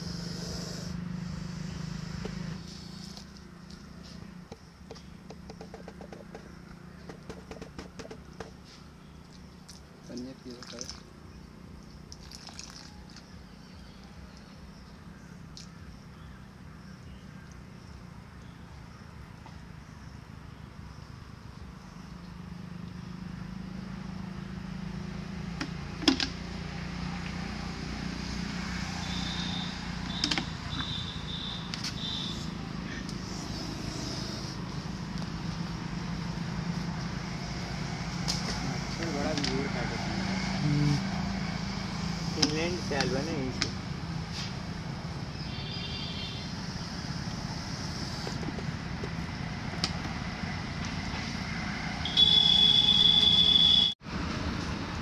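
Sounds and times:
water spattering on ground: 0:12.1 - 0:13.2.

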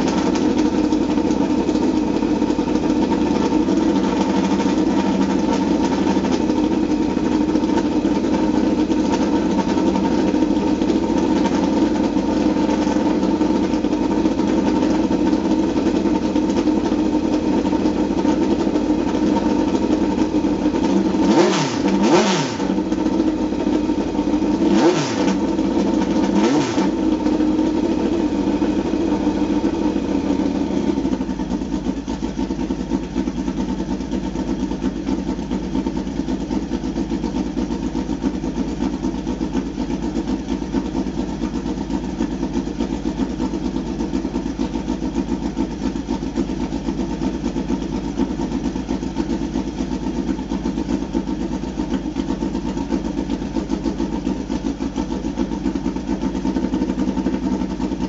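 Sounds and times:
race car engine idling: 0:00.0 - 0:58.0
engine revving blips: 0:21.2 - 0:22.7.

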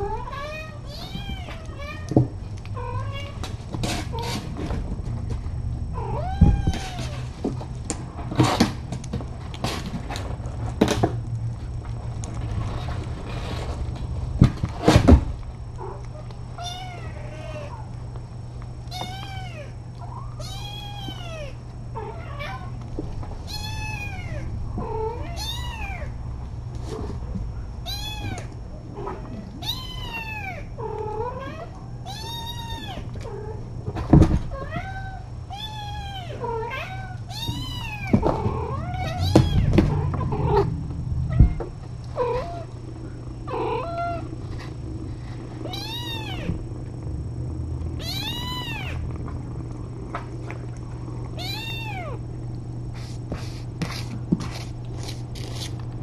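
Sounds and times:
steady low hum: 0:00.0 - 0:56.0
kitten meowing: 0:45.7 - 0:46.6, 0:48.0 - 0:49.0, 0:51.4 - 0:52.2.

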